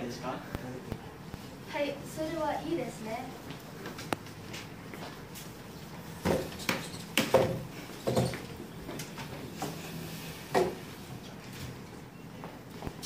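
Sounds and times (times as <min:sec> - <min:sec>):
chairs knocking on hard floor: 0:06.2 - 0:08.5.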